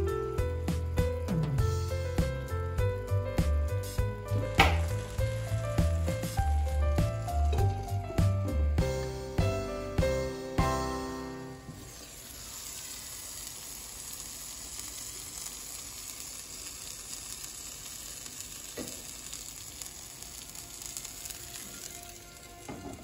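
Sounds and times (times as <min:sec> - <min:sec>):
omelette sizzling in pan: 0:00.3 - 0:23.0.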